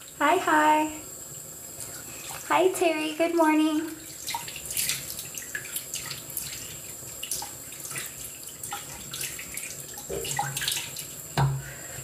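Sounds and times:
water running from sink tap: 0.0s - 12.0s
splashing water on face: 4.0s - 11.6s.

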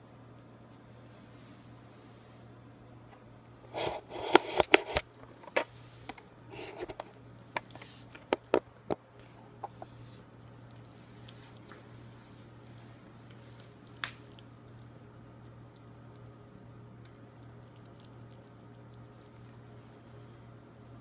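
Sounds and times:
low hum: 9.4s - 21.0s
cat eating wet food: 10.4s - 19.7s.

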